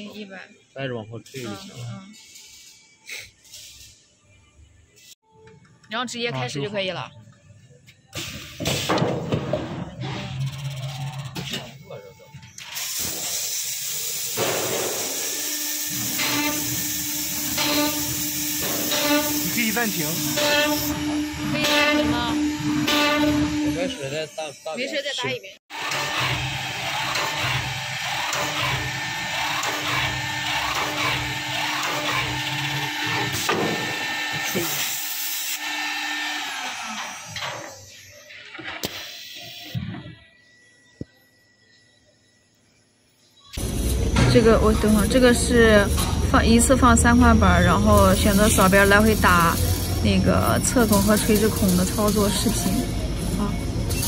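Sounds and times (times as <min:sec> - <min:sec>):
machine hiss: 0:12.6 - 0:21.1, 0:38.8 - 0:39.8, 0:47.3 - 0:52.9
machine hum: 0:15.5 - 0:24.3, 0:43.6 - 0:54.0.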